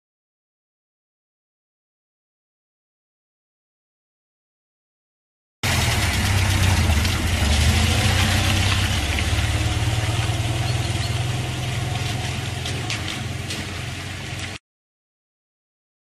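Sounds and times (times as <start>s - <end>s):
vehicle engine idling: 5.6s - 14.6s.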